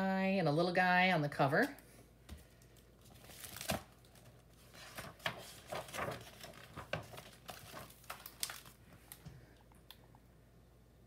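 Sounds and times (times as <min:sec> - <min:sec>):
book pages turning and rustling: 0:02.3 - 0:09.3.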